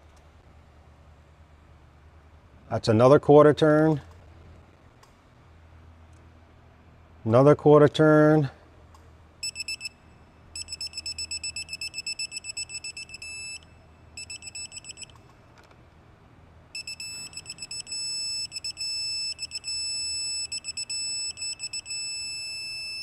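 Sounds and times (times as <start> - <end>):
torque wrench beeping: 9.4 - 15.2, 16.8 - 23.0.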